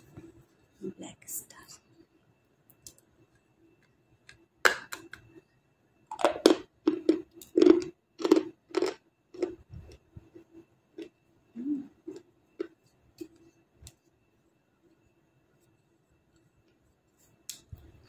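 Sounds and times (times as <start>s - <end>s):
crunching and chewing: 6.1s - 11.2s, 12.0s - 13.4s.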